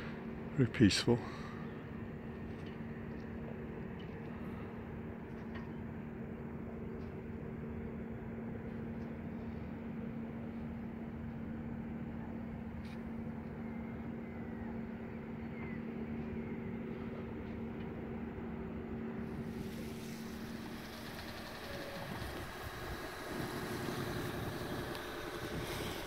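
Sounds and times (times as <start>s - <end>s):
boat engine humming: 0.0s - 26.0s
hiss: 19.3s - 26.0s.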